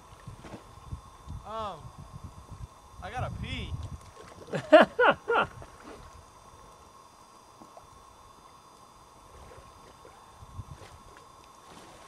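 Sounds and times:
calm seawater ambience: 0.0s - 3.1s, 3.8s - 12.0s
water splashing from wading: 9.3s - 12.0s.

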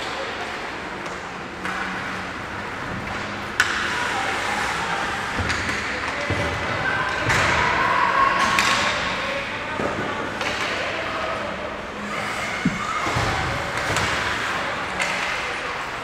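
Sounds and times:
hockey sticks knocking puck: 12.6s - 14.4s.

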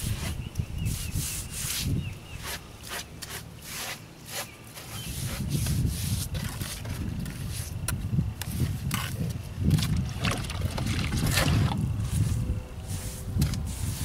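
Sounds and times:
sponge scrubbing wet mortar: 0.0s - 7.8s, 10.9s - 14.0s.

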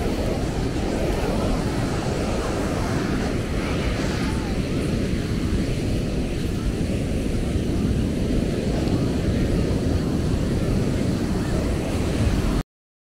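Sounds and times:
beach ambience: 0.0s - 12.6s.

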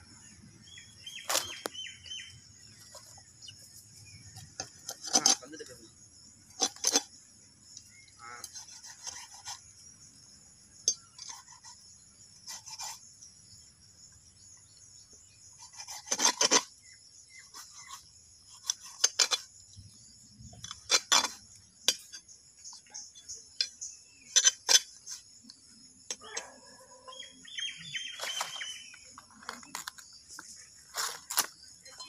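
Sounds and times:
insects chirring: 0.0s - 32.0s.

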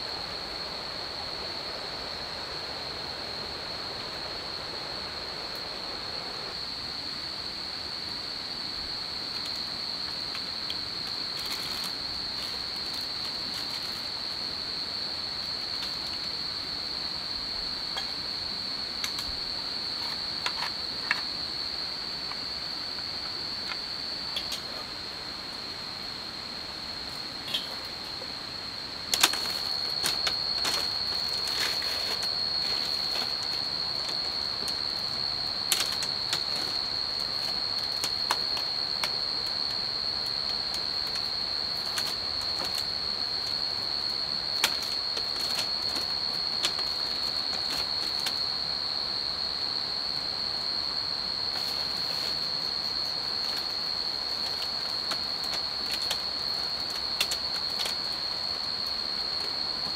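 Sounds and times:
night insect trill: 0.0s - 59.9s.

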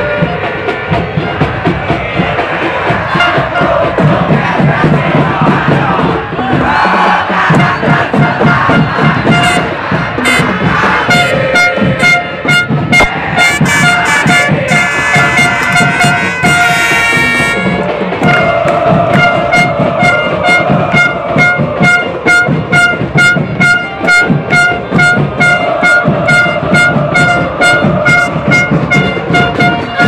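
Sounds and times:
crowd in the stands: 0.0s - 30.0s
drums beating a steady rhythm: 0.0s - 30.0s
horn sounding short notes: 8.2s - 10.5s, 11.1s - 30.0s.

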